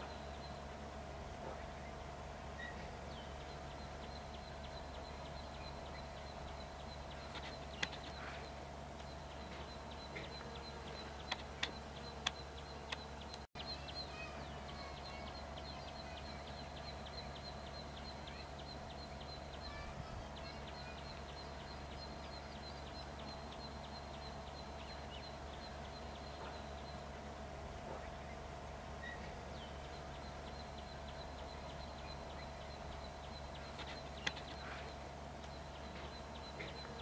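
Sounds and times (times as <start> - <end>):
insect hum: 0.0 - 37.0
bird chirping rapidly: 1.6 - 27.4, 28.0 - 37.0
sharp clicks: 7.2 - 8.4, 9.0 - 13.5, 33.6 - 36.9.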